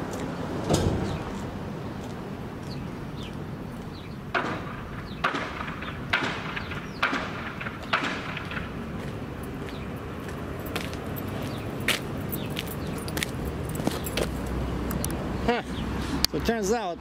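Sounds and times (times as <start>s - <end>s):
footsteps on gritty pavement: 0.0s - 0.4s, 1.1s - 15.1s
thump: 0.6s - 1.2s.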